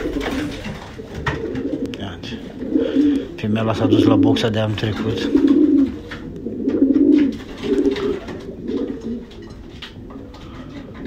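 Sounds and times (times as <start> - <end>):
wings fluttering: 0.0 - 1.8, 4.9 - 11.0
pigeons cooing: 0.0 - 11.0.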